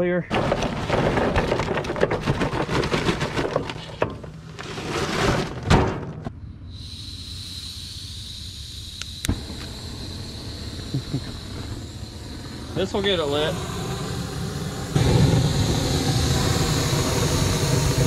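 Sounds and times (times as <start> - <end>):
charcoal clattering: 0.3 - 6.2
propane torch hissing: 6.6 - 18.0.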